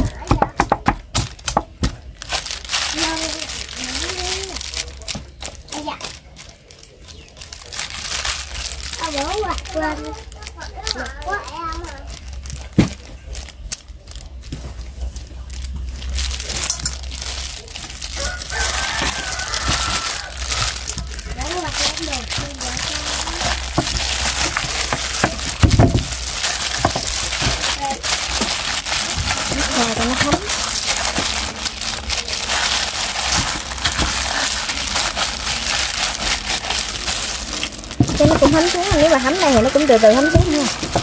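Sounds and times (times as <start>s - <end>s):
plastic gloves rustling: 0.0s - 41.0s
wet meat squishing: 14.3s - 41.0s
rooster crowing: 18.1s - 20.8s.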